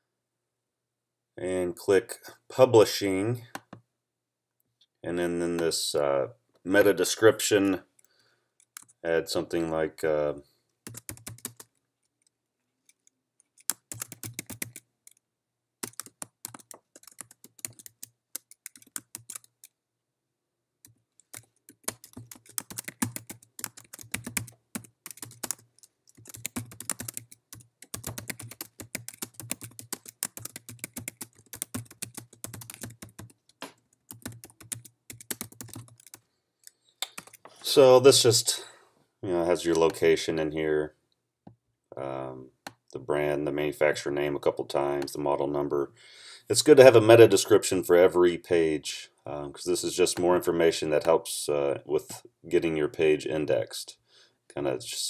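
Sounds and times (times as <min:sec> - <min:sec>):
typing on computer keyboard: 0:10.9 - 0:11.8, 0:12.9 - 0:15.2, 0:15.8 - 0:19.7, 0:21.2 - 0:37.5.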